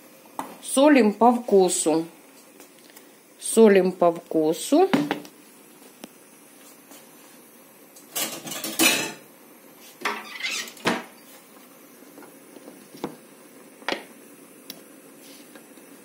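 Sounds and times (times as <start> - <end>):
spoon and lid clattering on counter: 8.2 - 9.2.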